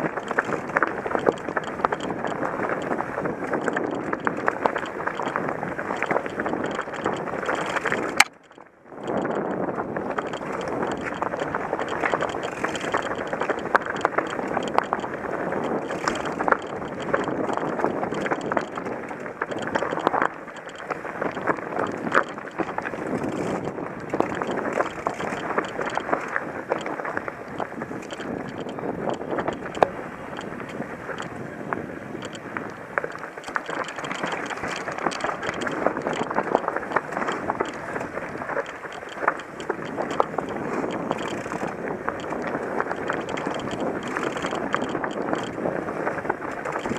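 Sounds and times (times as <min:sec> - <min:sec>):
bike clattering over rocks: 0:33.0 - 0:46.9.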